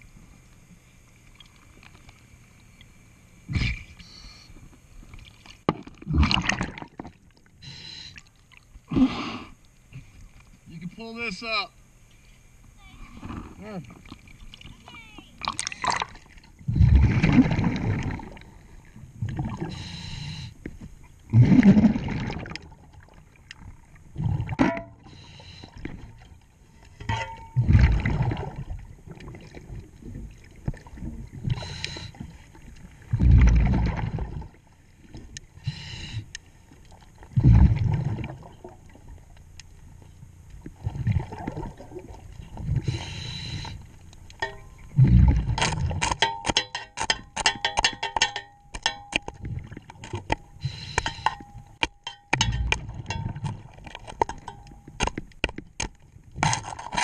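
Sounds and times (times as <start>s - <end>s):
regulator hissing inhalations: 3.5s - 4.6s, 7.6s - 8.2s, 19.6s - 20.6s, 25.0s - 25.9s, 31.5s - 32.4s, 35.6s - 36.4s, 42.8s - 43.9s, 50.6s - 51.4s
exhaled bubbles rumbling underwater: 5.0s - 7.6s, 13.1s - 19.8s, 20.8s - 26.5s, 27.5s - 35.6s, 36.8s - 39.4s, 40.3s - 44.1s, 44.7s - 46.1s, 49.3s - 50.1s
metallic clicks and clinks: 46.1s - 49.4s, 50.3s - 53.5s.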